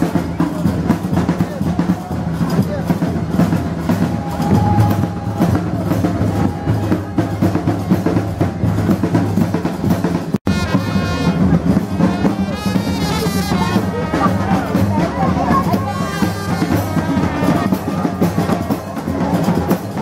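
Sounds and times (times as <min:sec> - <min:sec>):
drums beating: 0:00.0 - 0:20.0
wind instruments playing: 0:10.4 - 0:20.0.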